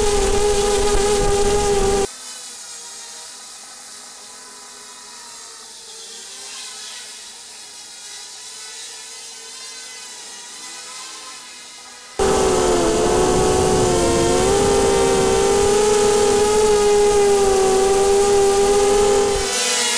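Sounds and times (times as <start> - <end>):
drone motors whining: 0.0 - 2.1, 12.2 - 19.6.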